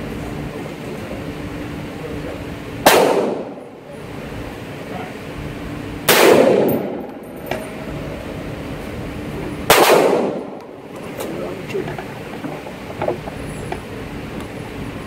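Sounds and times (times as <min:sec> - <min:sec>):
rifle shots with echo: 0:02.8 - 0:03.7, 0:06.1 - 0:07.2, 0:09.6 - 0:10.8.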